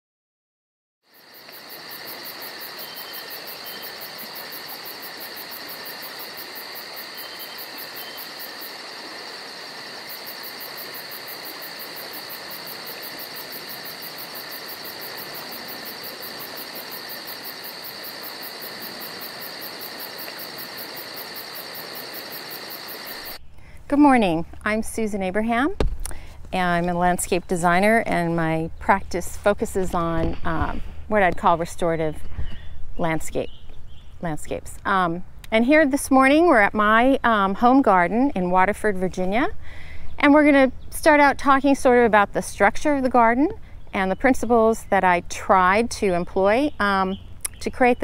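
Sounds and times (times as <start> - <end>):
insect chorus high buzz: 1.0 - 23.5
pulsing insect trill: 1.1 - 23.4.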